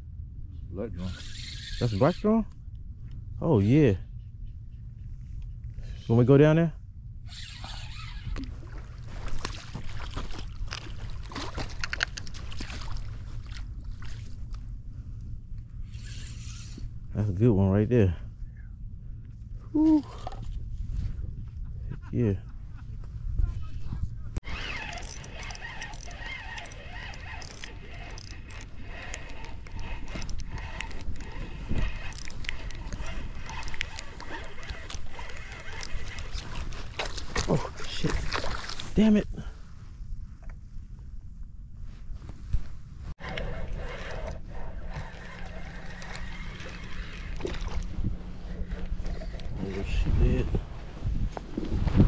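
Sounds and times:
wind rumble on microphone: 0:02.7 - 0:52.0
fishing reel clicks: 0:24.5 - 0:36.3, 0:43.3 - 0:47.8.

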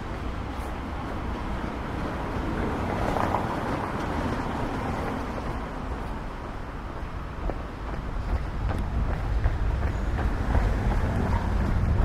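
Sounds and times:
steady low traffic rumble: 0:00.0 - 0:12.0
vehicle passing: 0:07.7 - 0:12.0.

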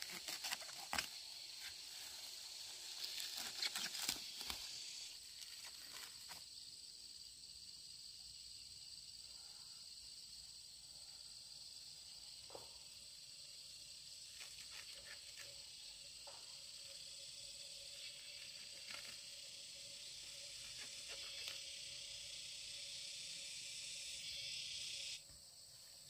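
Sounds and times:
insects chirring: 0:00.0 - 0:26.0.

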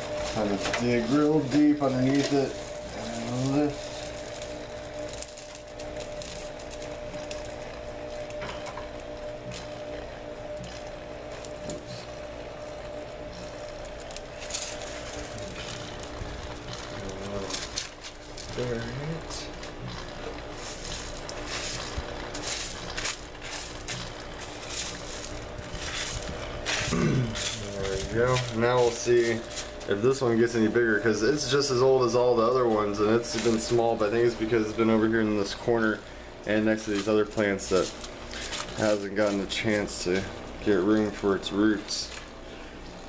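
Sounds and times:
steady low hum: 0:00.0 - 0:43.0
clay pebbles clicking and crunching: 0:13.8 - 0:29.9.

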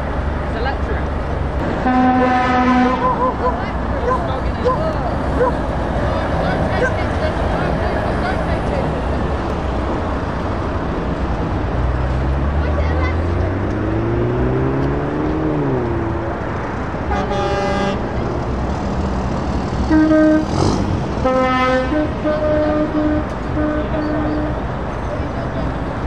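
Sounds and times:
passing truck: 0:00.0 - 0:26.0
truck engines rumbling: 0:00.0 - 0:26.0
truck air horn blasts: 0:01.8 - 0:03.5, 0:17.1 - 0:18.2, 0:19.8 - 0:24.7.

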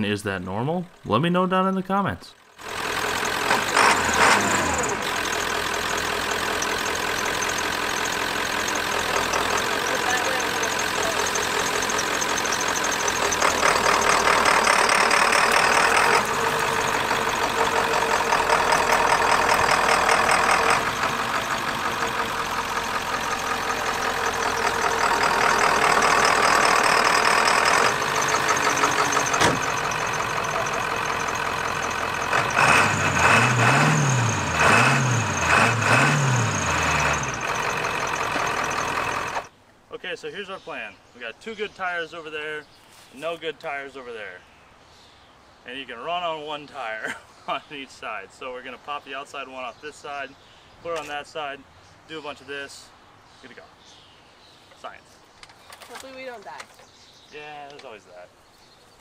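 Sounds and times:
diesel truck engine running: 0:00.0 - 0:39.5.

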